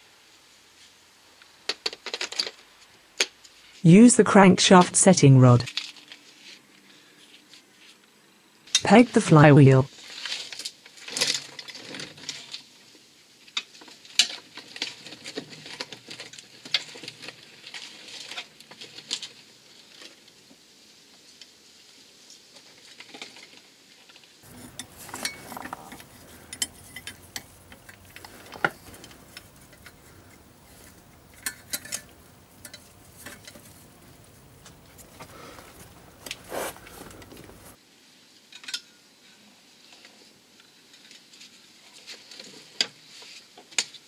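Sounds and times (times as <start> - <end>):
metallic clicks of hand tools: 24.5 - 35.2.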